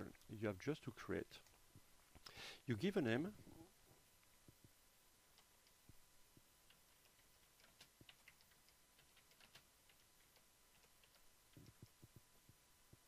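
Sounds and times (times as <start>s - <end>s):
keyboard typing: 6.6s - 12.2s.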